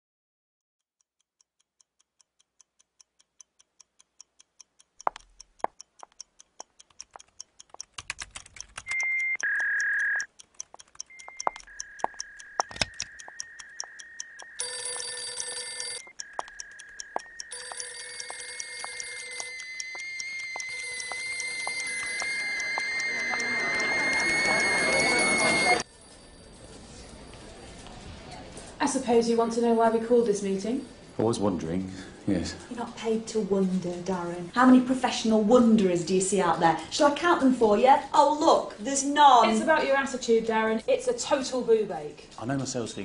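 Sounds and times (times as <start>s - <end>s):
clock ticking: 1.3s - 25.9s
beeping tones: 8.8s - 10.3s, 11.0s - 25.9s
electronic telephone rings: 9.0s - 10.3s, 11.2s - 25.9s.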